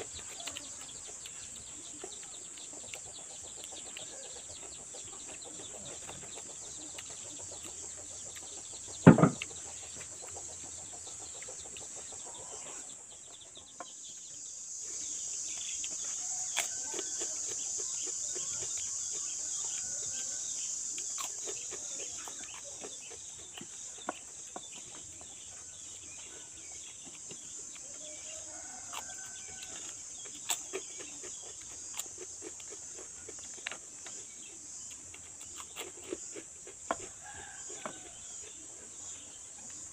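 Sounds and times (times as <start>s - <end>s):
small clicks from eating: 0.0s - 12.2s, 15.3s - 38.9s
chickens clucking: 0.0s - 39.9s
sharp knock: 9.1s - 9.4s.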